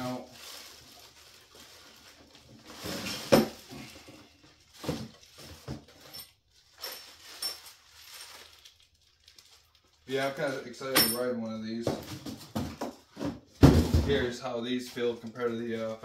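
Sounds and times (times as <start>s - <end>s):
plastic packaging crinkling: 0.0s - 3.7s, 4.4s - 10.8s, 14.7s - 16.0s
parts clinking: 10.9s - 11.4s.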